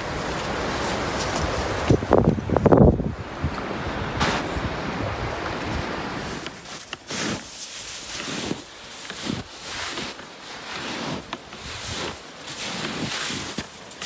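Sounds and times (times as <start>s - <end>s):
boot footsteps in snow: 0.0s - 2.2s, 5.6s - 14.0s.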